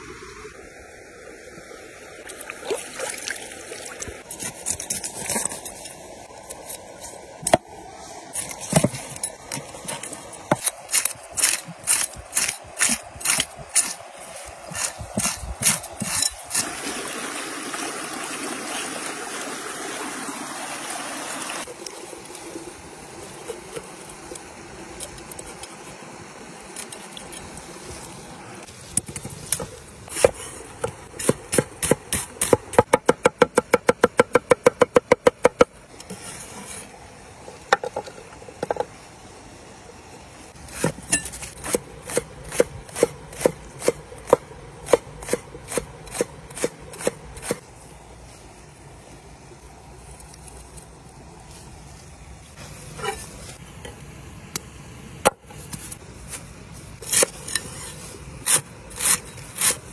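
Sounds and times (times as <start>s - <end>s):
stream water splashing over hands: 2.2s - 5.6s, 10.9s - 24.3s.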